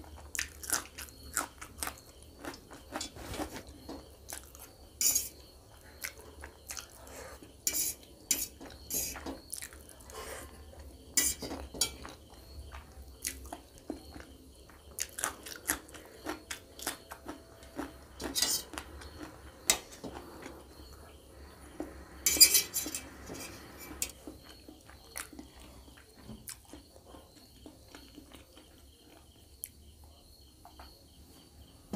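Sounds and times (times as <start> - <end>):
metal fork clinking on steel plate: 5.0 - 5.4, 22.3 - 23.0.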